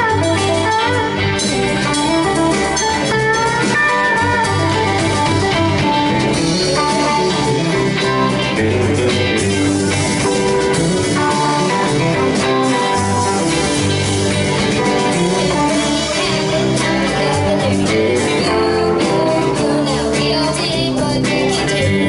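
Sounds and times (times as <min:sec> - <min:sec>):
rock band playing: 0:00.0 - 0:22.0
girl singing: 0:15.4 - 0:22.0.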